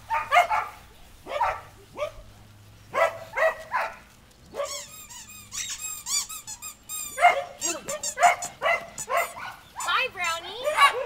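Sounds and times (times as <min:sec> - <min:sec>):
dog barking: 0:00.1 - 0:02.3, 0:02.9 - 0:04.8, 0:07.1 - 0:09.9, 0:10.6 - 0:11.0
squeaky dog toy squeaking: 0:04.6 - 0:10.5.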